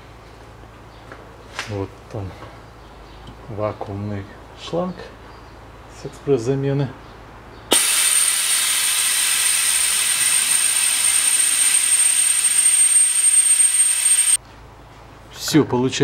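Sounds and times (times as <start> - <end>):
high whistle: 7.7 - 14.4
vacuum hose suction hiss: 7.7 - 14.4.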